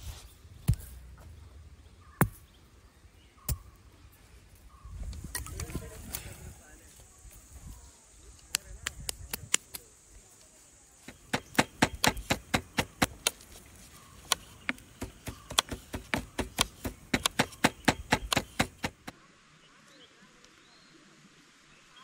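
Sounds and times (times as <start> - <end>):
knife chopping on wooden board: 11.1 - 13.4, 14.2 - 19.1.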